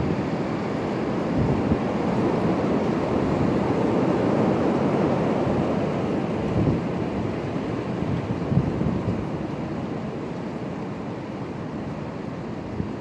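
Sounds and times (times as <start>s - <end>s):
wind buffeting microphone: 0.0s - 9.6s
high wind rushing through trees: 0.0s - 13.0s.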